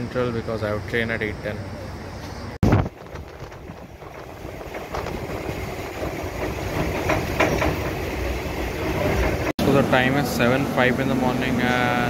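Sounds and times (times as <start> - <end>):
train rumbling on rails: 0.0 - 12.0.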